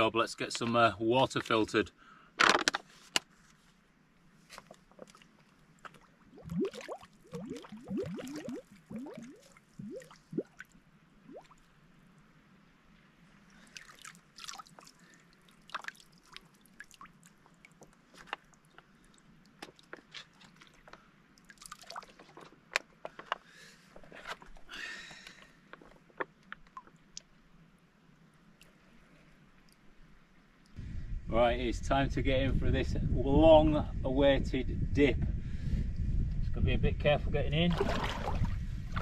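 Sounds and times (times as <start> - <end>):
water flask gurgling as it fills: 6.4 - 10.5.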